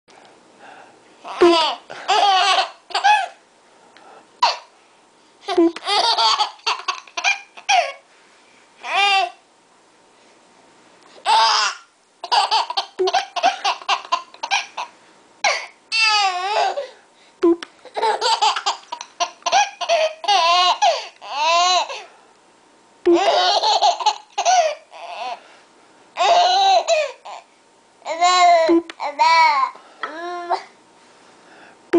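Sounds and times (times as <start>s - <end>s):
baby laughing: 1.3s - 3.4s, 5.4s - 8.0s, 8.8s - 9.4s, 11.2s - 14.9s, 15.5s - 16.9s, 17.8s - 22.0s, 23.1s - 25.4s, 26.2s - 27.5s.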